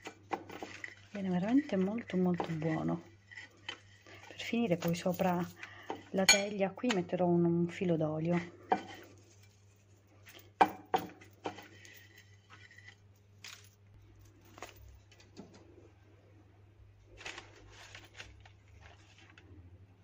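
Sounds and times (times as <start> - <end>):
food handling noises: 0.0 - 7.1, 8.3 - 20.0
fork clinking on ceramic plate: 6.2 - 6.5.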